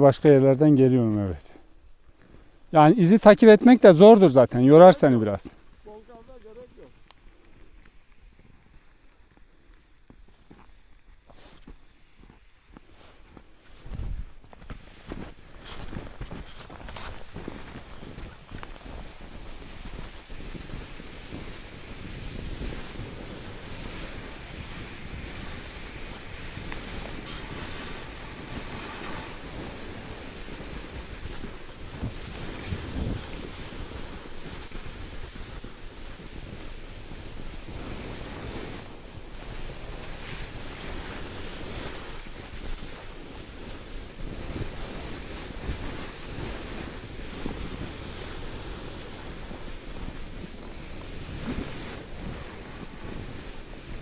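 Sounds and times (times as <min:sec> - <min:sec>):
skis sliding over snow: 0:02.2 - 0:54.0
wind buffeting microphone: 0:13.7 - 0:54.0.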